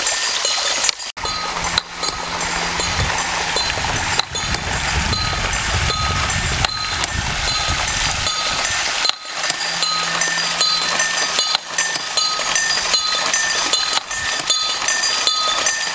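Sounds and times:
stream rushing: 0.0s - 15.9s
small bells clinking: 4.4s - 15.9s.

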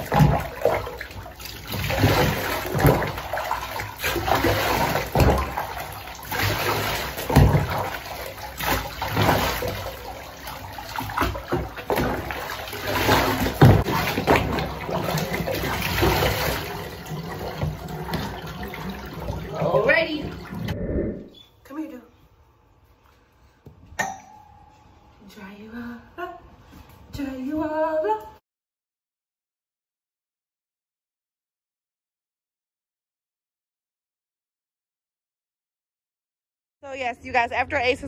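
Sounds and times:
water splashing over dog: 0.0s - 20.6s.

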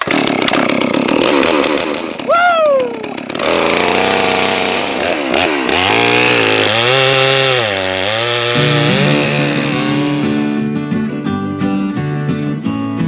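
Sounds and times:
chainsaw engine revving: 0.0s - 2.3s, 2.9s - 10.3s
acoustic guitar music: 8.5s - 13.0s.

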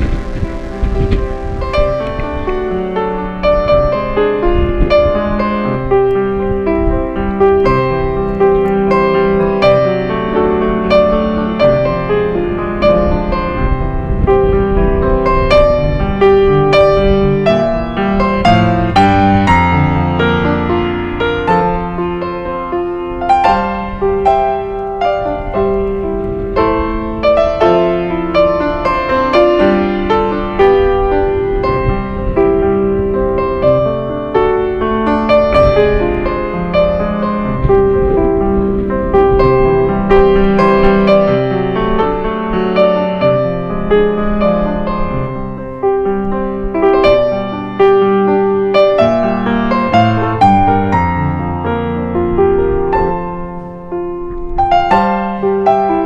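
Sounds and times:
gentle piano music: 0.0s - 56.0s.

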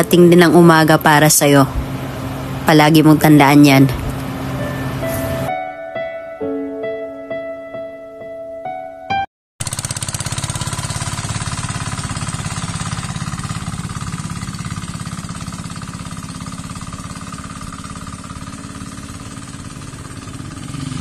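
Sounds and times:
tractor engine chugging: 9.6s - 21.0s.

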